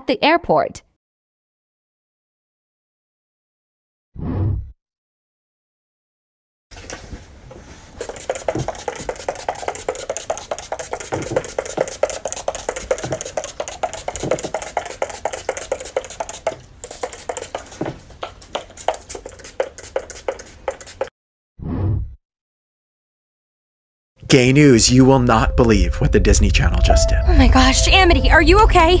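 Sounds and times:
spray pump bottle spritzing: 7.9 - 21.1.

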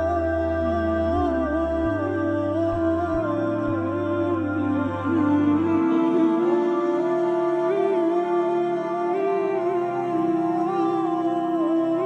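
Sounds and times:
slow soft melody: 0.0 - 12.0.

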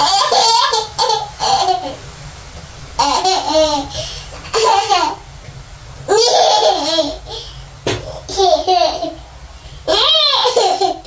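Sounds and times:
toddler laughing: 0.0 - 2.0, 3.0 - 5.2, 6.1 - 7.5, 8.1 - 9.2, 9.9 - 11.0.

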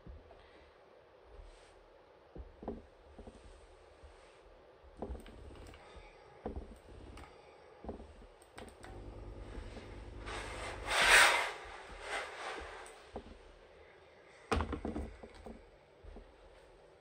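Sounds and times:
steam iron sliding over fabric: 8.9 - 13.4.

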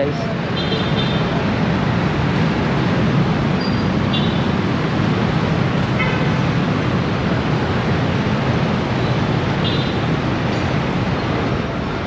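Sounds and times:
surrounding traffic noise: 0.0 - 12.0.

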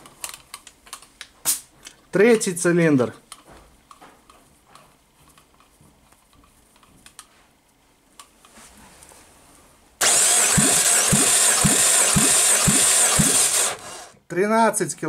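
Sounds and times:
engine cranking with motor whine: 10.0 - 14.2.

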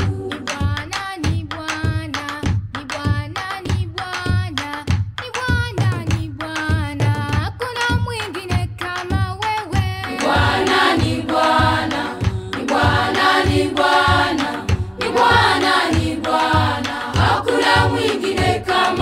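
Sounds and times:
voices singing together: 0.0 - 1.4, 10.0 - 19.0
steady drum beat: 0.0 - 19.0.

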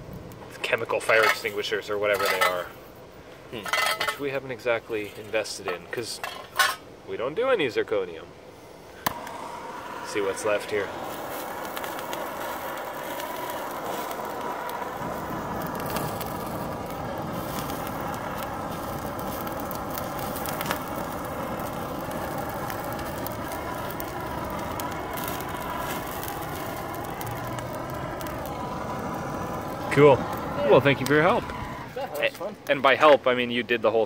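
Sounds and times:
burning metal crackling: 0.0 - 34.0
gas torch hissing: 8.4 - 33.0.

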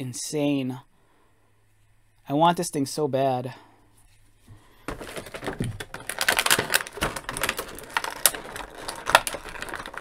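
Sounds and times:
plastic packaging crinkling: 4.8 - 10.0.

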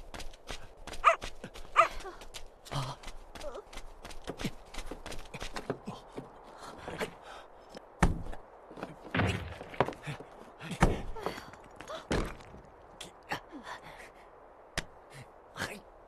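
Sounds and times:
stones thudding and knocking: 8.0 - 12.9.

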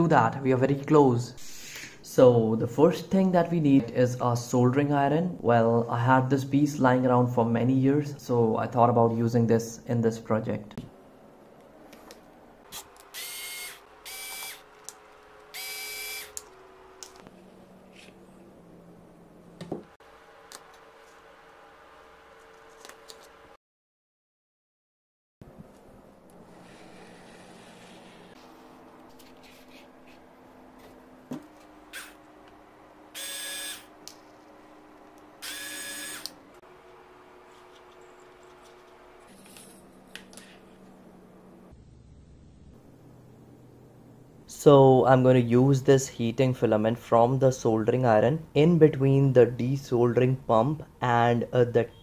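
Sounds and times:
electric screwdriver whining: 12.7 - 16.6, 31.9 - 32.2, 33.1 - 33.9, 35.4 - 36.4
cordless drill-driver bursts: 13.1 - 14.7, 15.5 - 16.4, 33.2 - 33.9, 35.4 - 36.4.

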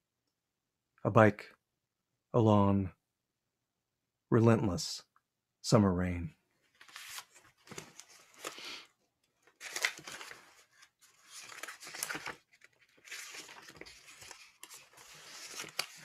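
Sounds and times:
paper pages rustling: 6.6 - 16.0.

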